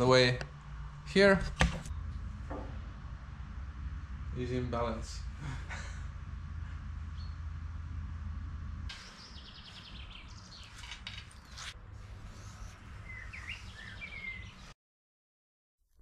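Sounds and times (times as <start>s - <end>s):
low steady hum: 0.0s - 13.8s
bird chirping: 7.0s - 7.5s, 8.9s - 14.8s.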